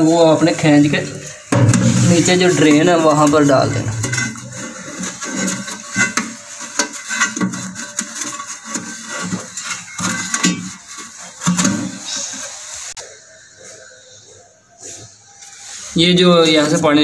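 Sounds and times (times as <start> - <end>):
plastic pipe scraping: 0.0 - 13.1.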